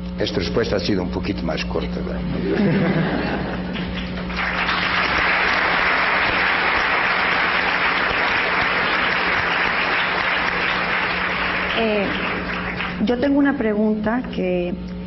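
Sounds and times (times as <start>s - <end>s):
audience applauding: 2.9s - 13.4s.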